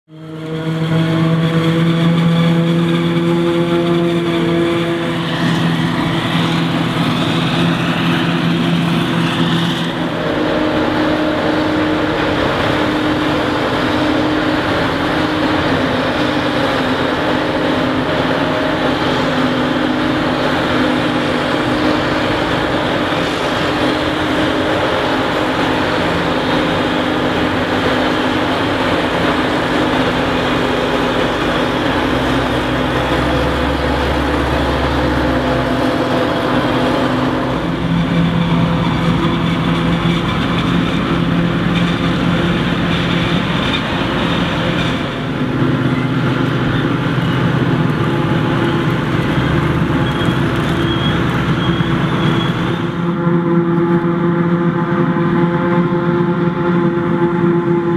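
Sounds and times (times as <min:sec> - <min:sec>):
harvester engine drone: 0:00.1 - 0:57.9.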